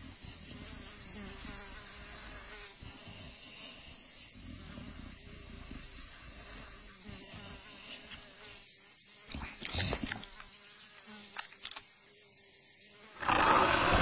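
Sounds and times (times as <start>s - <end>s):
insect chirping trill: 0.0s - 14.0s.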